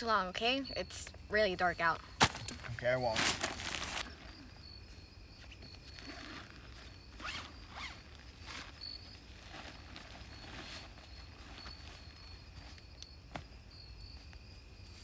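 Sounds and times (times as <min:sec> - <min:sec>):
zipper rasping: 0:06.0 - 0:08.1.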